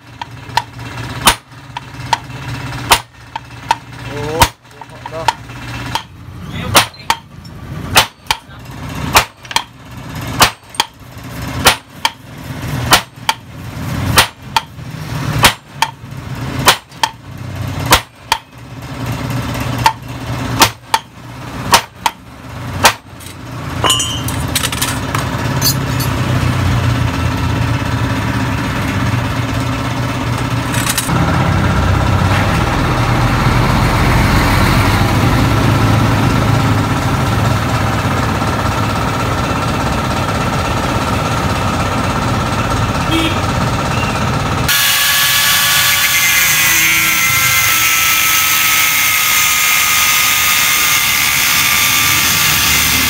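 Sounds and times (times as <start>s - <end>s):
hammer striking metal axle: 0.0s - 26.5s, 44.7s - 53.0s
engine running: 0.0s - 53.0s.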